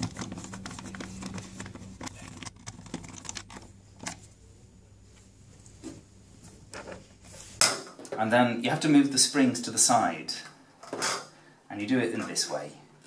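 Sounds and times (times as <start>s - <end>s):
hand handling noise: 0.0s - 4.5s.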